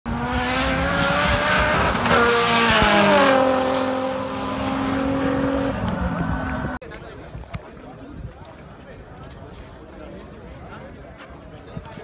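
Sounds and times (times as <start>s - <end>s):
race car engines at high revs: 0.1s - 6.8s.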